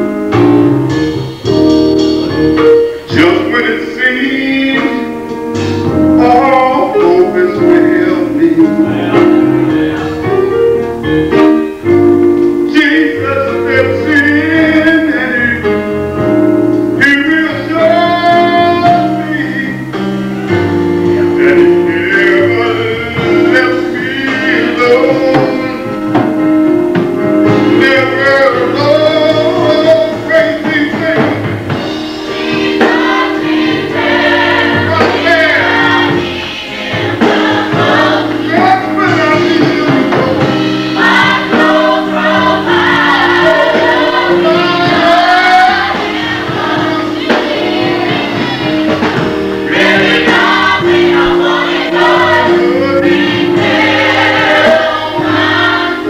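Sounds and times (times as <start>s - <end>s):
gospel choir singing: 0.0s - 56.0s
keyboard chords: 0.0s - 56.0s
man singing lead: 3.1s - 5.2s, 6.0s - 10.5s, 12.7s - 15.8s, 17.0s - 20.0s, 21.1s - 26.0s, 27.6s - 31.6s, 34.6s - 36.3s, 38.5s - 40.6s.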